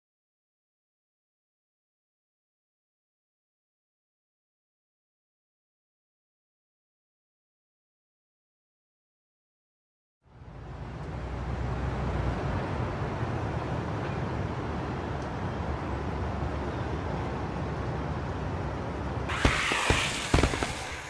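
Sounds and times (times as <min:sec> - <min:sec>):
firework crackling and banging: 0:19.3 - 0:21.0.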